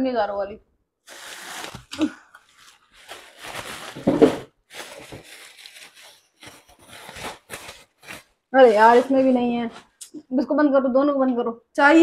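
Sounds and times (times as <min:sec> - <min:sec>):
plastic bag rustling: 0:01.0 - 0:10.0.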